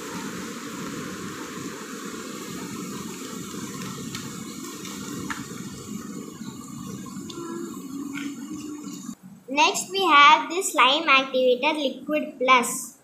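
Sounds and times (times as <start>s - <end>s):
steady rushing noise: 0.0s - 10.1s.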